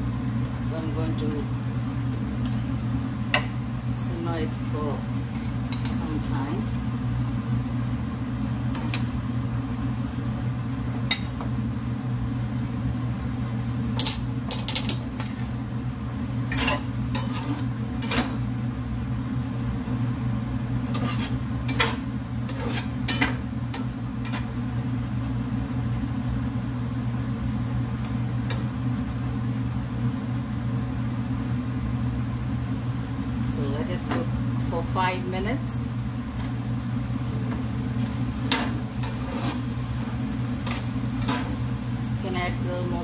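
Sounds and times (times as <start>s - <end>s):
steady low hum: 0.0s - 43.0s
spatula scraping a frying pan: 8.7s - 9.1s, 16.5s - 18.4s, 20.8s - 24.5s, 38.4s - 39.8s, 40.6s - 41.7s.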